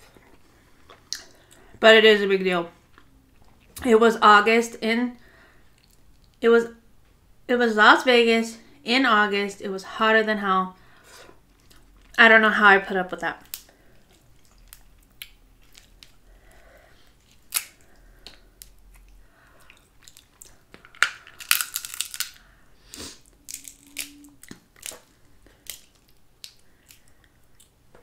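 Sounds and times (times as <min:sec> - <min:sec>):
crab shell cracking: 0:13.4 - 0:13.7, 0:17.2 - 0:22.5, 0:23.5 - 0:27.8.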